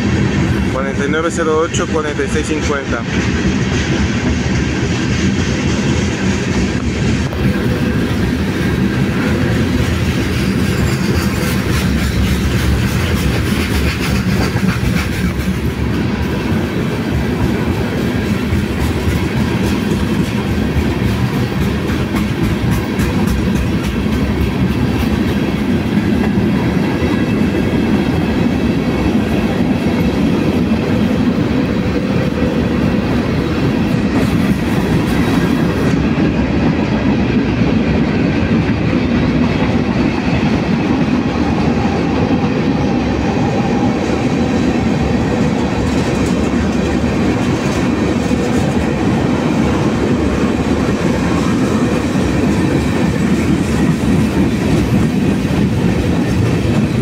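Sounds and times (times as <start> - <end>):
rumble of train wheels on rails: 0.0 - 57.0
wheels clicking over rail joints: 5.8 - 16.6, 17.4 - 31.3.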